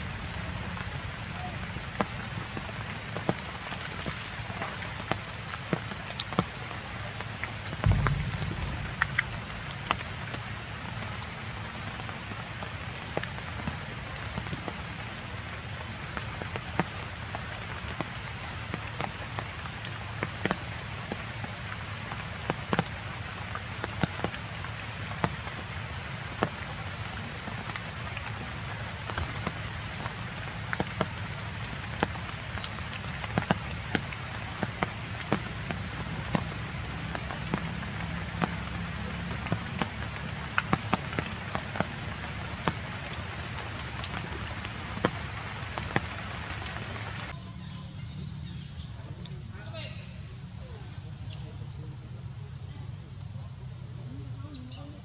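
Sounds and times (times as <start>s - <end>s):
rain falling: 0.0s - 55.0s
raindrops ticking on surfaces: 0.0s - 55.0s
low thump: 7.8s - 11.4s.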